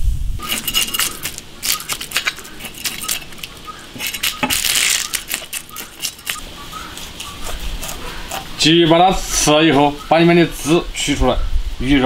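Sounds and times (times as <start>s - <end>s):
knife scraping fish scales: 0.4s - 8.7s.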